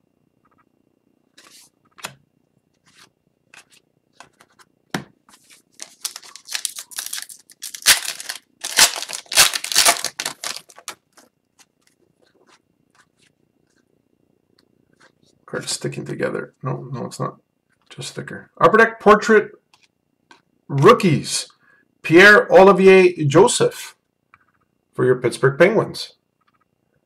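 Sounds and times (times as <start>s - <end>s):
foil wrapper tearing and crinkling: 5.8s - 11.3s.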